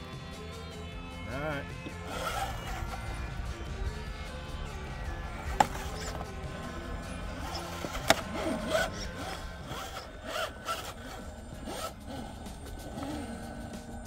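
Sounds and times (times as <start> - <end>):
electric motor whining: 0.0 - 14.0
tyres scraping on stone: 1.9 - 3.3, 5.3 - 14.0.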